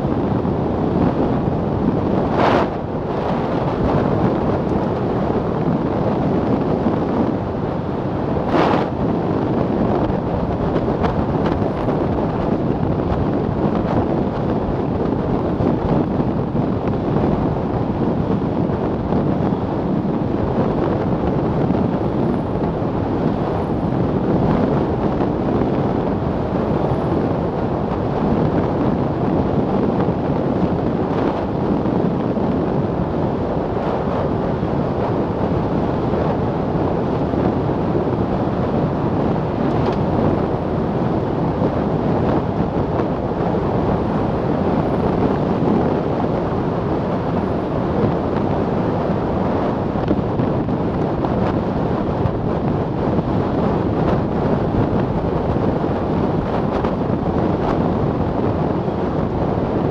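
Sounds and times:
wind rushing on microphone: 0.0s - 59.9s.

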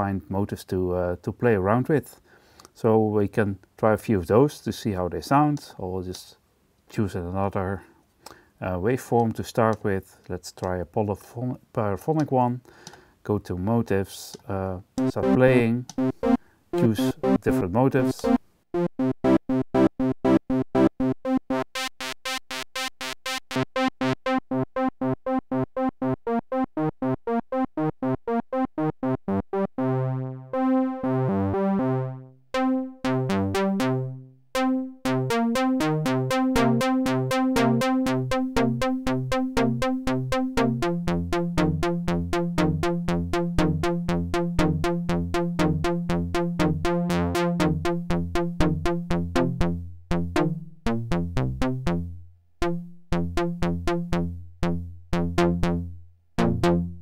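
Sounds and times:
synthesizer sequence of short notes: 15.0s - 57.0s.

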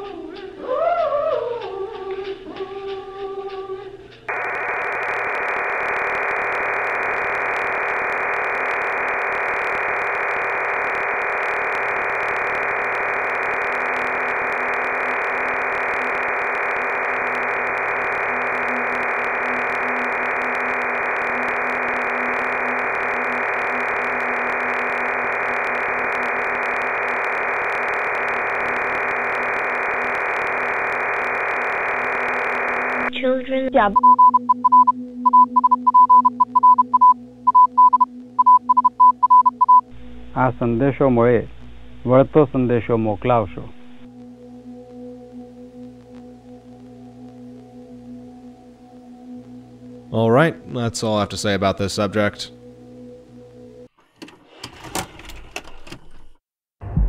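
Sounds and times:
radio static hiss: 4.3s - 34.8s, 36.5s - 52.6s
low wavering hum: 40.0s - 50.1s.

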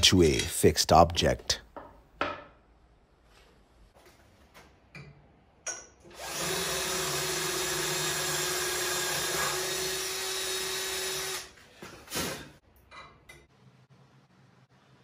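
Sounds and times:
drill drilling into wood: 6.1s - 11.5s.

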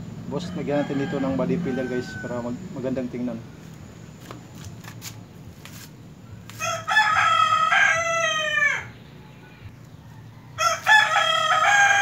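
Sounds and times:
rooster crowing: 0.3s - 2.7s, 6.5s - 9.0s, 10.0s - 12.0s.

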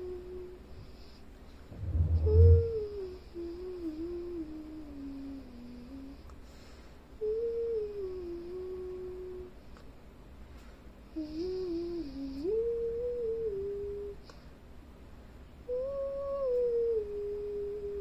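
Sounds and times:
person humming a slow tune: 0.0s - 0.8s, 1.8s - 6.3s, 7.2s - 9.6s, 11.1s - 14.4s, 15.6s - 18.0s.

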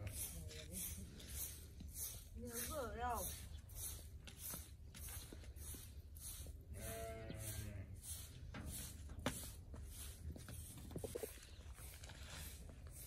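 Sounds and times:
farm animal bleating: 6.7s - 8.0s.

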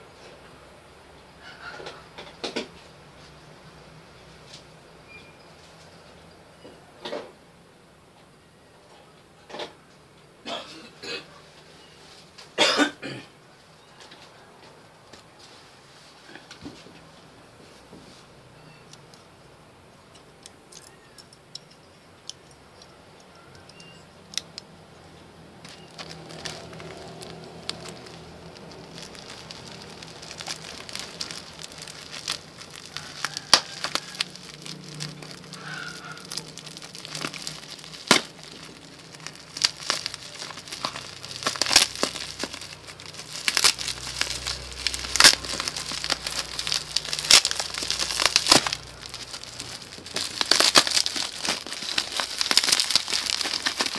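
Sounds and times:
plastic wrapping crinkling: 25.4s - 53.9s.

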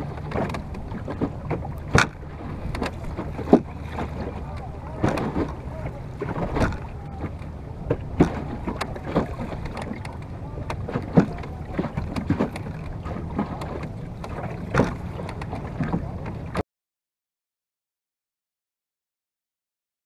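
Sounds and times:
water slapping against hull: 0.0s - 16.6s
wind on microphone: 0.0s - 16.6s.

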